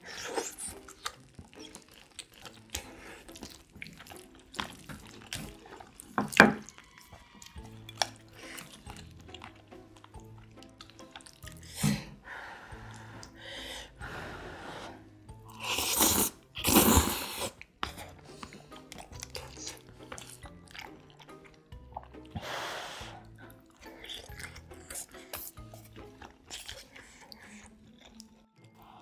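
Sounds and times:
soft chewing: 0:00.0 - 0:13.4, 0:15.3 - 0:22.4, 0:23.2 - 0:29.0
faint background music: 0:00.0 - 0:29.0
person slurping noodles: 0:14.9 - 0:20.9.

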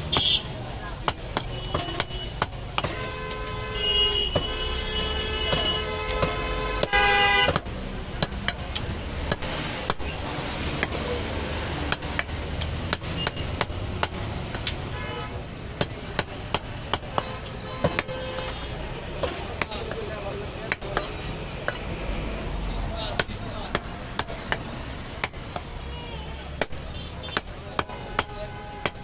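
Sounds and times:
cleaver chopping meat and bone: 0:00.0 - 0:03.6, 0:05.4 - 0:22.0, 0:23.0 - 0:25.8, 0:26.4 - 0:29.0
vehicle horn honking: 0:01.5 - 0:07.6, 0:14.9 - 0:15.4, 0:17.2 - 0:18.8.

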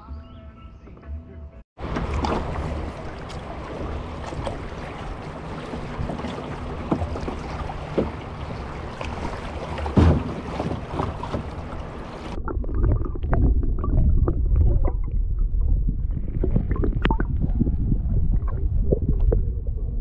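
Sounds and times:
paddle splash: 0:01.8 - 0:12.4
muffled underwater water rumble: 0:01.8 - 0:20.0
water and wind noise: 0:01.8 - 0:20.0
underwater clicks and bubble pops: 0:12.3 - 0:20.0.

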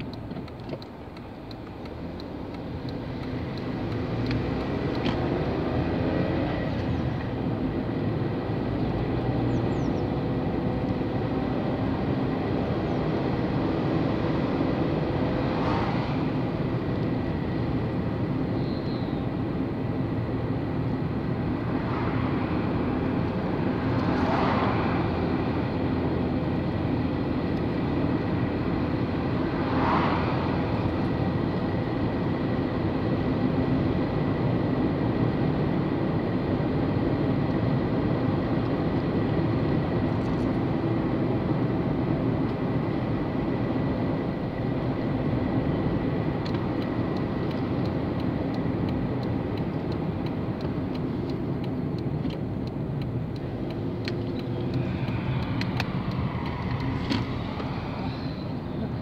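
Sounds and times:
road and engine noise in car: 0:00.0 - 0:59.0.

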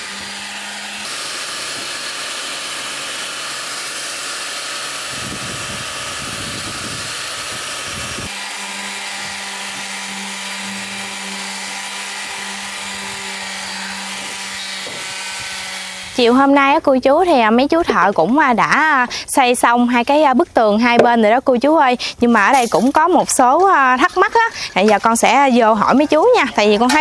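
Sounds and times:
power tool sanding wood: 0:00.0 - 0:16.8.

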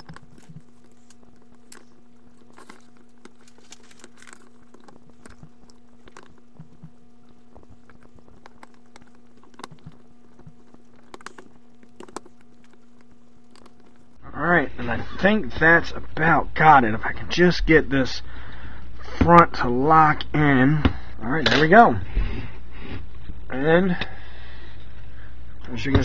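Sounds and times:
small plastic clicks and crackles: 0:00.0 - 0:14.2
steady low hum: 0:00.0 - 0:26.0.

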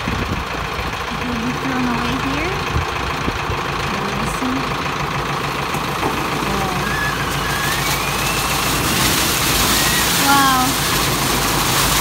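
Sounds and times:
tractor engine running: 0:00.0 - 0:12.0
corn cobs tumbling and rattling: 0:05.5 - 0:12.0.

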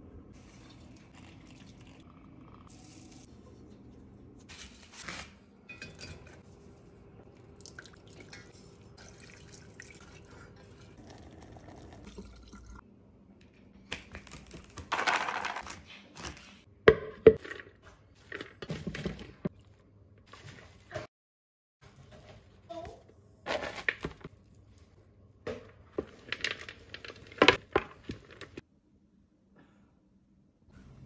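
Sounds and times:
liquid dripping and pouring: 0:00.4 - 0:03.3, 0:07.3 - 0:12.8
cookware clinking: 0:05.7 - 0:06.4.

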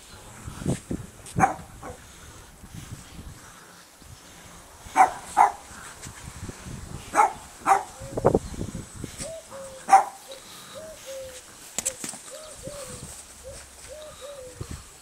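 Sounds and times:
small dogs barking: 0:01.4 - 0:02.0, 0:04.9 - 0:05.8, 0:07.1 - 0:08.1, 0:09.5 - 0:11.1.

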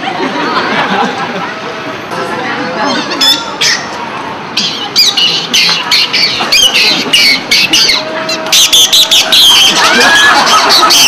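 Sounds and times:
clown's squeaky squawks: 0:02.8 - 0:04.0, 0:04.6 - 0:11.0.

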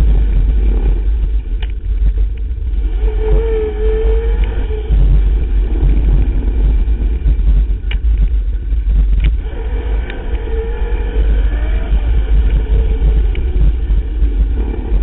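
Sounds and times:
bike clicks and rattles: 0:00.0 - 0:02.8, 0:05.7 - 0:09.4
thin steady whine: 0:00.0 - 0:15.0
wind and trail vibration rumble: 0:00.0 - 0:15.0.

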